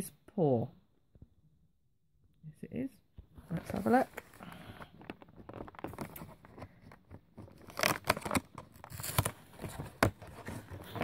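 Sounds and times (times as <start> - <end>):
cardboard tearing: 7.4 - 11.0.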